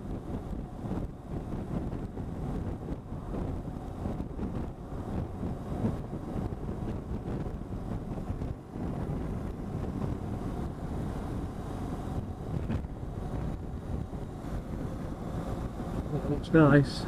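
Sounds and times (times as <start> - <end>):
motorcycle and tyres rumbling: 0.0 - 17.0
wind buffeting microphone: 0.0 - 17.0.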